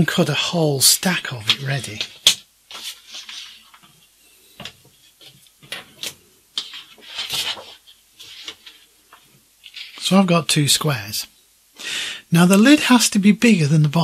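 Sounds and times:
paper rustling: 0.9s - 10.3s.

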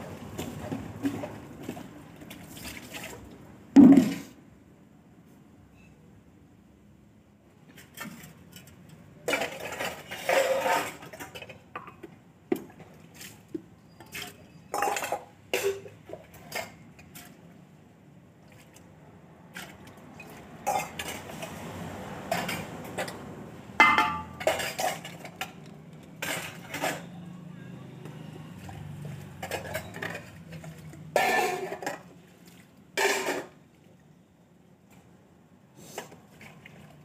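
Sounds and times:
metal bowls and pots clanking: 7.8s - 12.9s, 14.0s - 17.2s, 19.6s - 27.3s, 28.1s - 32.2s, 33.0s - 33.6s.

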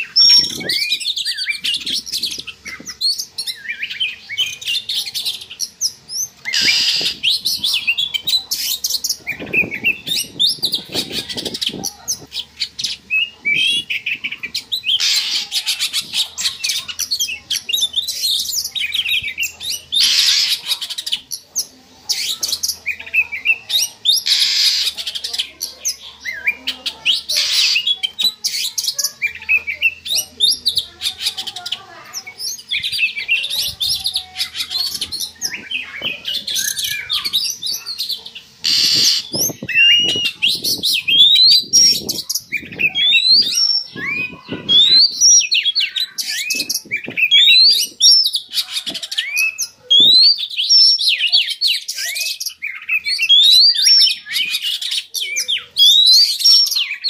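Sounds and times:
bird song chirps and trills: 0.0s - 57.0s
harsh rasping bird call: 6.1s - 8.7s, 13.1s - 17.4s, 18.2s - 21.2s, 22.1s - 25.6s, 26.3s - 30.5s, 31.1s - 57.0s.

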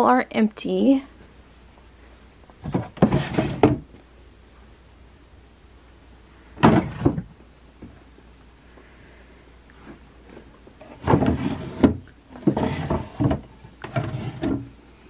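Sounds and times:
drawers opening and shutting: 2.6s - 4.0s, 6.6s - 7.3s, 10.8s - 14.8s.

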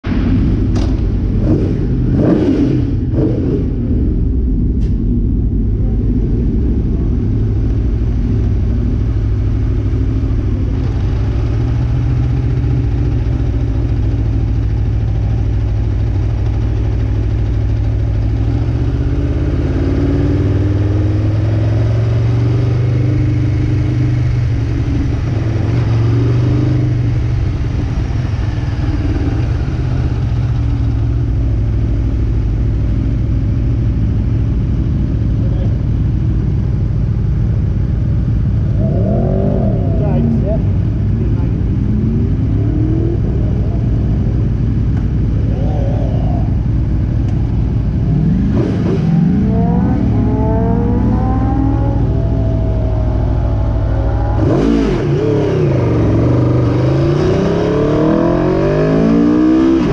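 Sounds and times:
motorcycle engine idling: 2.9s - 57.0s.

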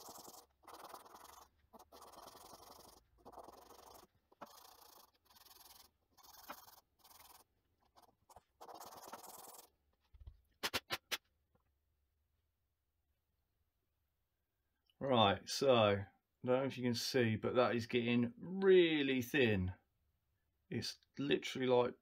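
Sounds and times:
quick sharp clicks: 10.6s - 11.3s.

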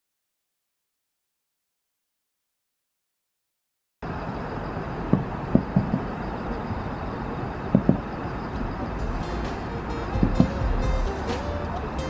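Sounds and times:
city traffic rumble: 4.0s - 12.0s
distant fireworks booms: 5.0s - 6.4s, 7.6s - 9.2s.

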